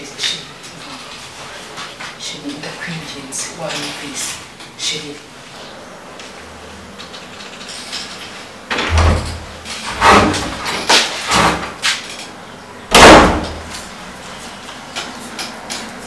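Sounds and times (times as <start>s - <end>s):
door knocks and thumps: 8.7s - 11.7s
door slamming: 8.7s - 11.8s, 12.9s - 13.8s.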